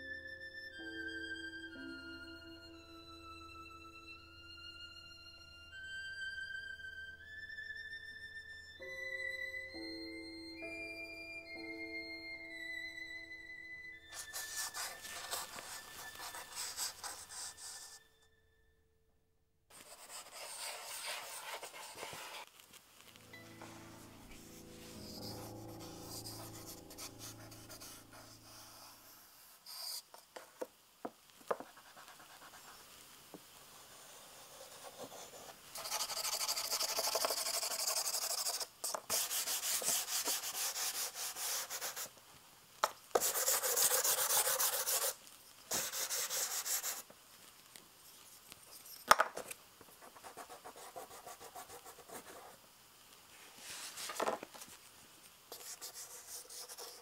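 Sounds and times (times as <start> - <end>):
charcoal scraping on paper: 14.2 - 18.0, 19.8 - 22.5, 33.8 - 42.1, 43.2 - 47.0.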